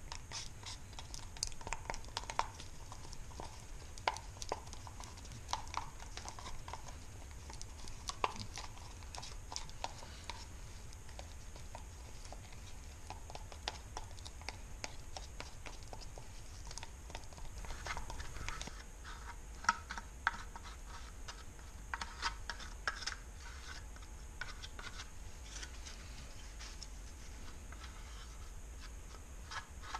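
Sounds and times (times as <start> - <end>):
stick scraping in a cup: 0.0 - 26.0, 27.4 - 29.9
steady low hum: 0.0 - 29.9.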